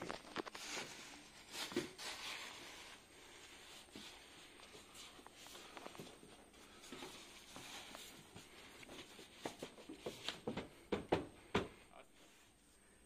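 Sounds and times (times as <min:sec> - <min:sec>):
irregular knocks and clicks: 0:09.4 - 0:11.8.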